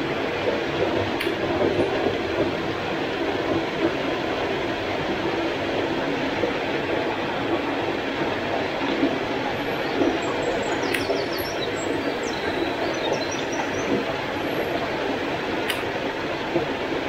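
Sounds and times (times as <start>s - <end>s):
mountain stream rushing: 0.0s - 17.0s
sharp click: 10.9s - 11.2s.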